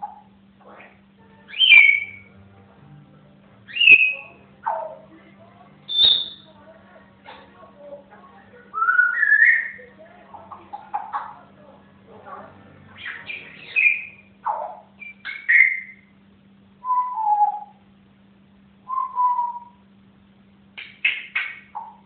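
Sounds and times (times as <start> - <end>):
parrot whistling and chirping: 0.0 - 2.3, 3.7 - 5.0, 5.9 - 6.5, 8.7 - 9.9, 13.0 - 16.1, 16.8 - 17.8, 18.9 - 19.8, 20.8 - 22.0.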